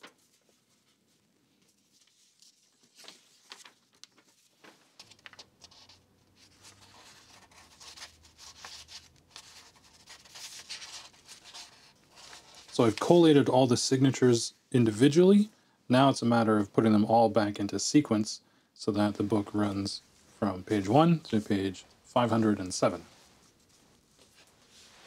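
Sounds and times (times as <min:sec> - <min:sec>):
paper sheets rustling: 0:00.0 - 0:13.4.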